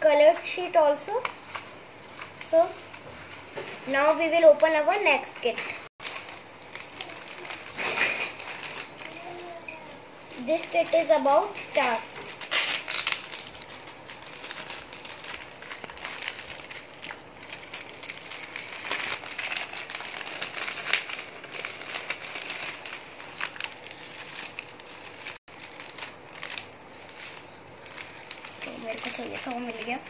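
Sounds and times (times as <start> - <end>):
plastic bag crinkling: 6.0 - 30.0.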